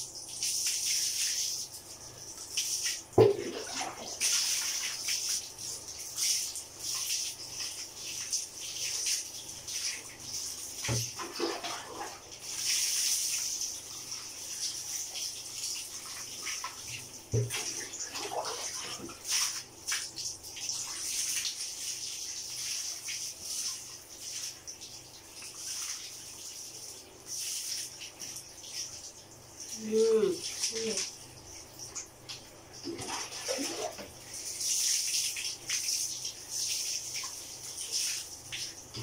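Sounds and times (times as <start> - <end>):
water pouring and splashing: 0.0 - 39.0.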